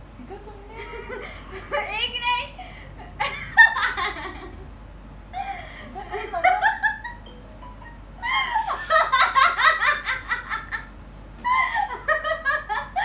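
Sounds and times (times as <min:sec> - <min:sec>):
young women laughing: 0:00.3 - 0:02.1, 0:02.9 - 0:04.7, 0:05.3 - 0:07.3, 0:08.2 - 0:13.0.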